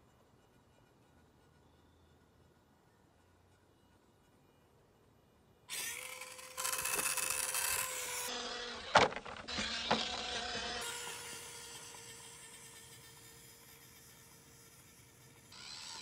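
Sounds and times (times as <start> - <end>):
toy truck knocking over: 5.7 - 10.9
small electric motor whining: 5.7 - 16.0.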